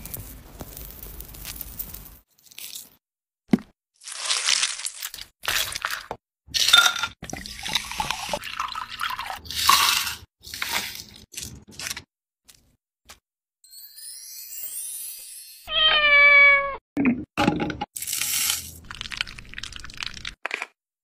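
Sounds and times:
liquid pouring into a glass: 7.3s - 10.1s.

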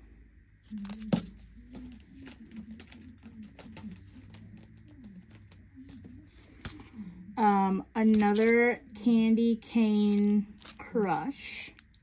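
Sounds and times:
faint low wavering hum: 0.0s - 12.0s
packets clicking and tapping: 0.7s - 6.9s, 8.1s - 8.5s, 10.0s - 10.8s.

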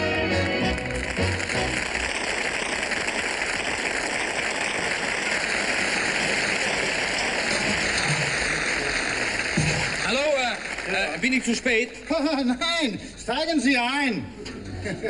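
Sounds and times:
garbage truck running: 0.0s - 12.1s.

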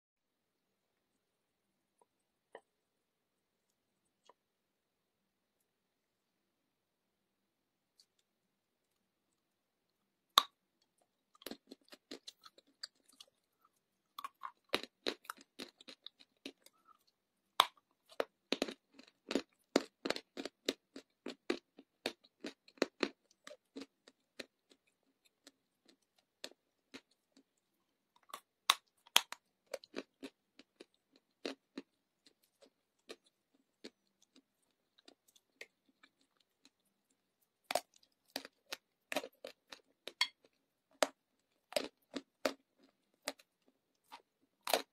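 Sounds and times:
crunchy chewing: 10.4s - 44.9s.

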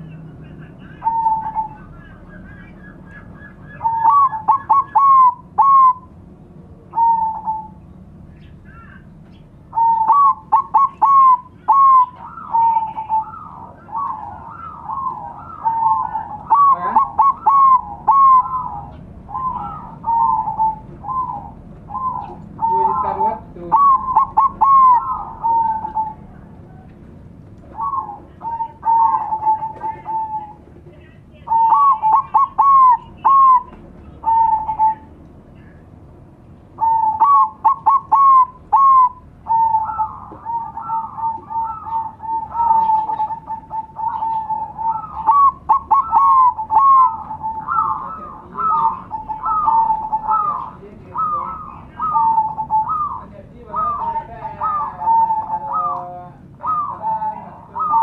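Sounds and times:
doves singing: 0.0s - 58.0s.

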